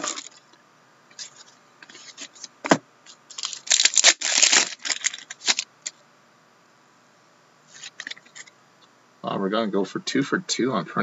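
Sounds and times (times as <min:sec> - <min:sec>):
card pack wrapper crinkling: 0:00.0 - 0:00.4, 0:03.3 - 0:05.7.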